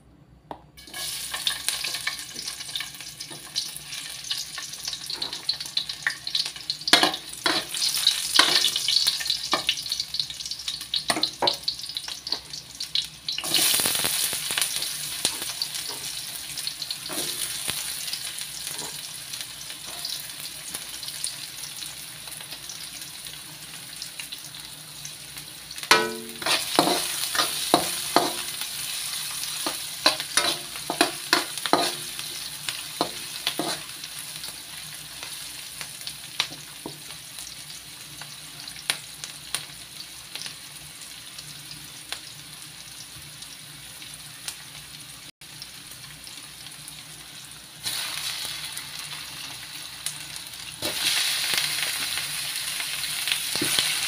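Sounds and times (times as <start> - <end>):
onion sizzling in hot oil: 0.8 - 54.0
metal spatula scraping a wok: 7.0 - 8.8, 17.0 - 17.6, 18.6 - 19.1, 25.9 - 34.0.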